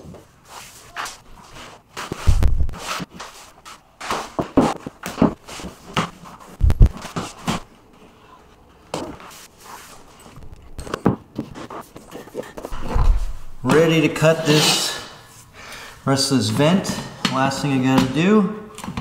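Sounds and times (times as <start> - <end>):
floor planks knocking and scuffing: 0.0 - 7.7
heavy thump: 2.3 - 2.7, 12.8 - 13.8.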